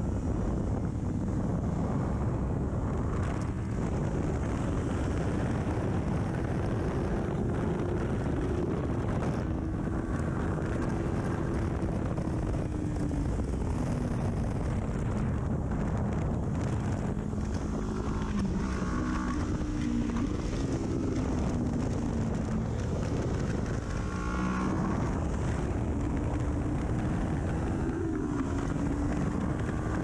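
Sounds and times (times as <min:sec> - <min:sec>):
wind noise on microphone: 0:00.0 - 0:30.0.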